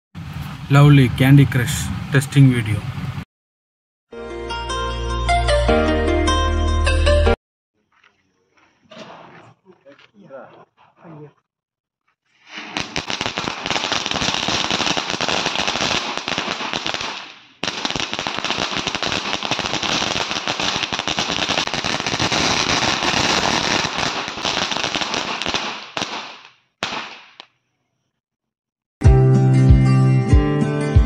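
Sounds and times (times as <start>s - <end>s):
firework crackling and fizzing: 12.4s - 27.4s.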